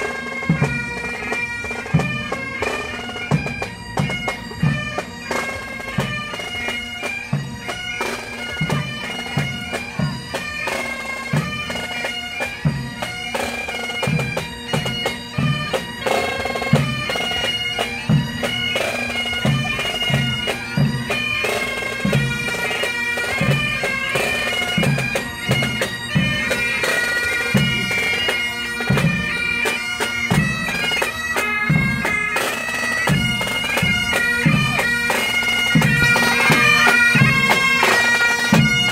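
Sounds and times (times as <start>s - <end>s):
bagpipes playing a tune: 0.0s - 38.9s
regular drum beat: 28.8s - 38.9s.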